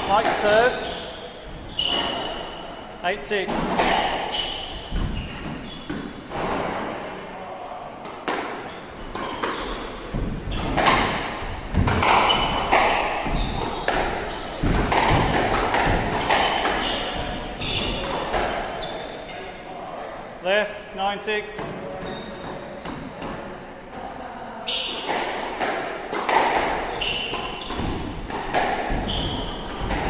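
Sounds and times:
shoes squeaking on wooden floor: 0.0s - 6.4s, 8.6s - 19.5s, 21.6s - 23.2s, 26.2s - 30.0s
squash ball hitting rackets and walls: 0.0s - 7.0s, 8.0s - 19.5s, 21.6s - 23.6s, 24.7s - 30.0s.

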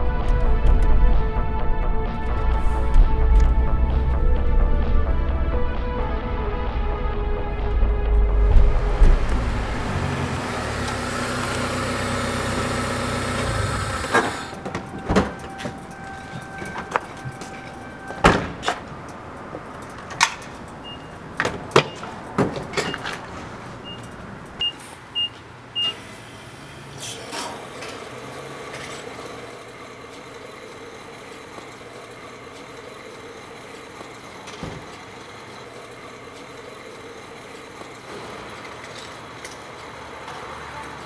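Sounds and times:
pump motor humming: 8.3s - 16.1s.

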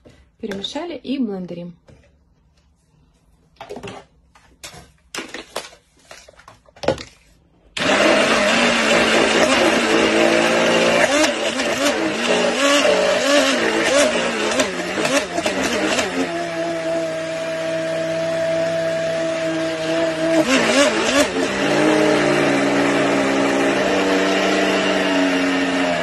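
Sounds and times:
stick blender running: 7.8s - 26.0s.

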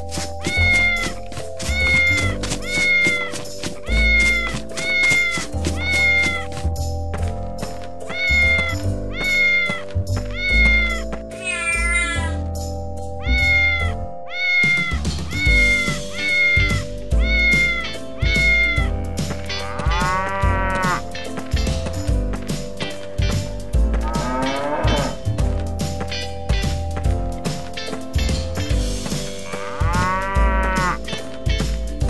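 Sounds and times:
cheerful background music: 0.0s - 32.0s
cat meowing: 1.7s - 6.5s, 8.1s - 11.1s, 13.2s - 18.9s.

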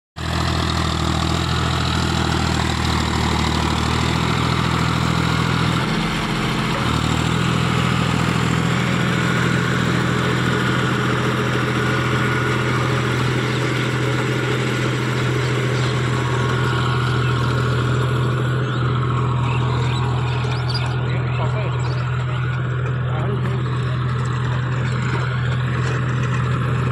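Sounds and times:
tractor diesel engine under load: 0.2s - 26.9s.

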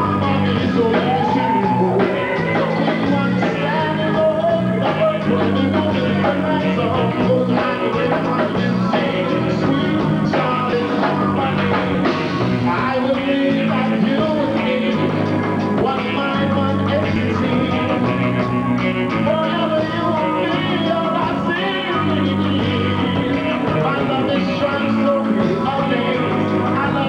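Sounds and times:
live band music: 0.0s - 27.0s
man singing into a microphone: 0.0s - 27.0s
steady bass line: 0.0s - 27.0s.

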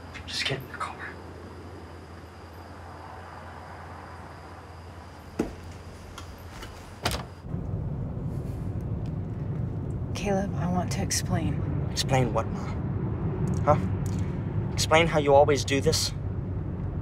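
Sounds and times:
low steady hum: 0.0s - 17.0s
sharp knocks: 5.4s - 5.7s.

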